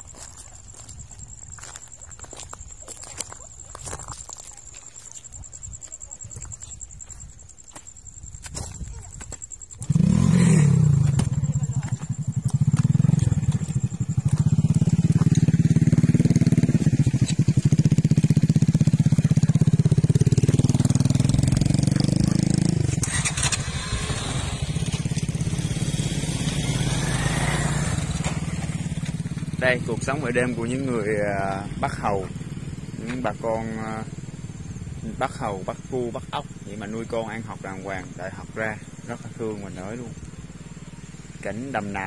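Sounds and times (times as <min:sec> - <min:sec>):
motorcycle engine revving and running: 0:09.8 - 0:42.0.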